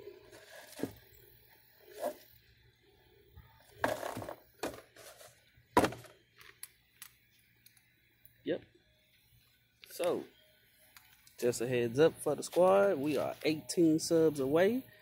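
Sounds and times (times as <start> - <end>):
box thunk set down: 3.8 - 5.2, 5.8 - 6.1
small ticks: 6.4 - 8.4.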